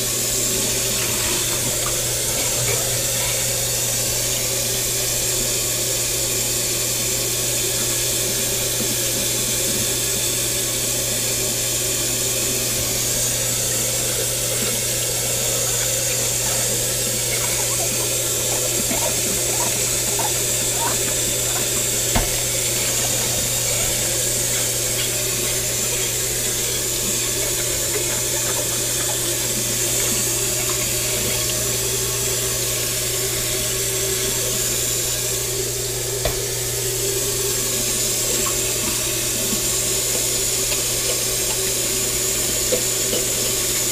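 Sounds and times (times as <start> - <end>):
tap running into sink: 0.3 - 5.0, 12.6 - 35.2, 36.2 - 36.6, 37.4 - 43.9.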